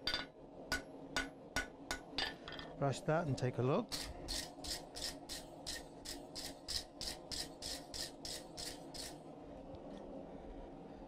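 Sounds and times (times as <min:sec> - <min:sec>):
wire brush scrubbing steel: 0:03.9 - 0:09.2.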